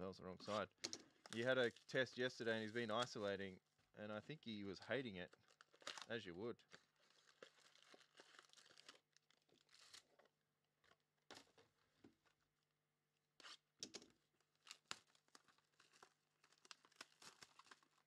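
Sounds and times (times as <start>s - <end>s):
foil packs crinkling and tearing: 1.2s - 3.2s, 5.0s - 10.2s, 14.5s - 18.0s.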